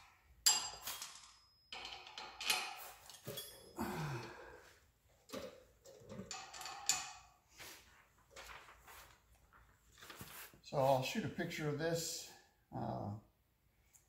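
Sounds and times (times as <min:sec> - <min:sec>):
metal tools clinking and knocking: 0:00.4 - 0:04.3, 0:05.2 - 0:07.4.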